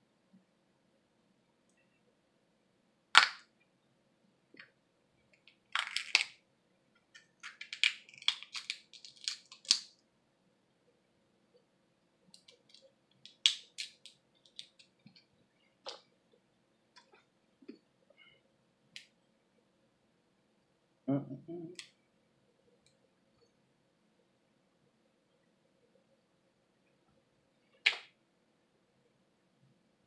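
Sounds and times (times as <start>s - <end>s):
crab shells cracking and snapping: 3.2s - 3.4s, 5.4s - 6.4s, 7.1s - 10.0s, 12.4s - 14.9s.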